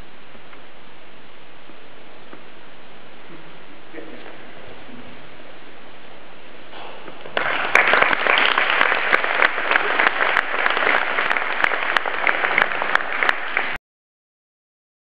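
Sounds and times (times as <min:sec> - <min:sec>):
background hiss: 0:00.0 - 0:13.8
audience applauding: 0:07.3 - 0:13.8.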